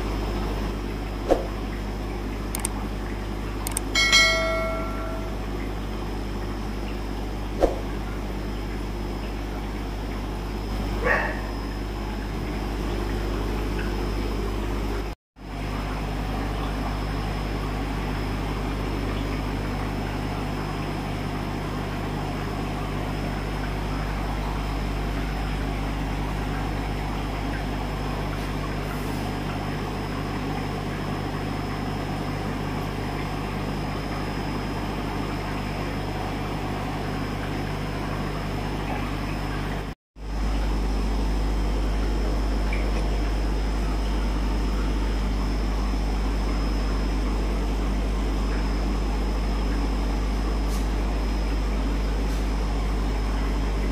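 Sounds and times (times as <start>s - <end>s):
aquarium air pumps humming: 0.0s - 53.9s
thin high whine: 3.7s - 5.7s.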